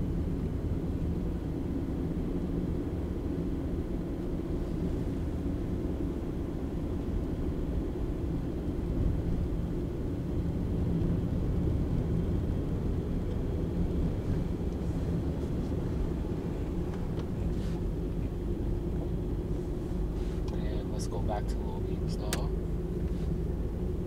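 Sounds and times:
car engine drone: 0.0 - 24.0.

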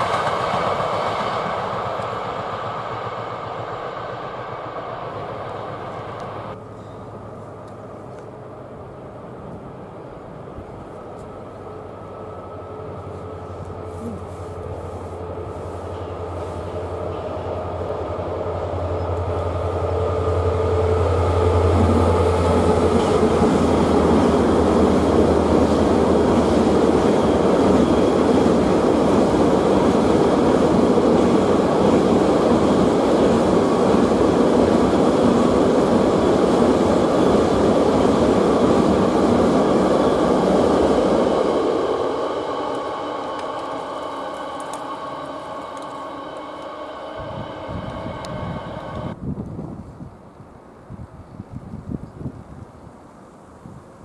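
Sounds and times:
locomotive hum: 0.0 - 49.4
train wheels rumbling on rail: 0.0 - 52.8.

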